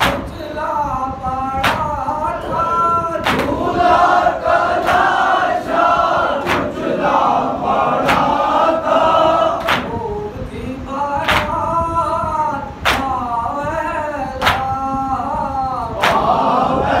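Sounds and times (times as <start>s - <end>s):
chest-beating slaps: 0.0s - 0.4s, 1.6s - 1.9s, 3.2s - 3.6s, 4.8s - 5.3s, 6.4s - 6.9s, 8.0s - 8.4s, 9.6s - 10.0s, 11.2s - 11.6s, 12.8s - 13.2s, 14.4s - 14.8s, 16.0s - 16.4s
men singing in chorus: 0.0s - 17.0s.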